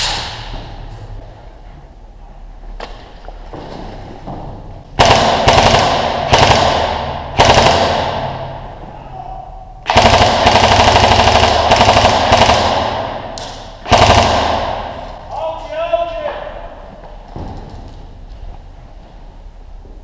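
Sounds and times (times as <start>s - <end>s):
electric gun firing bursts: 5.0s - 8.6s, 9.8s - 15.2s.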